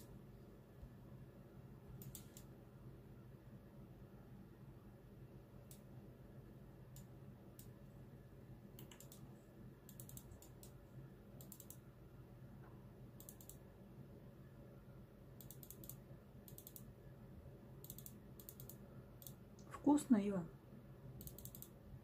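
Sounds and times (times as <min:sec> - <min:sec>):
room hum: 0:00.0 - 0:22.0
faint sharp clicks: 0:02.0 - 0:02.5.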